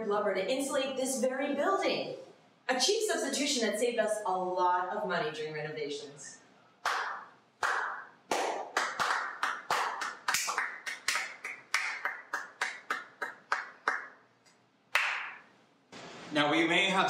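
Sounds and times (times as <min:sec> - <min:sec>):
people clapping hands: 0:06.8 - 0:15.5.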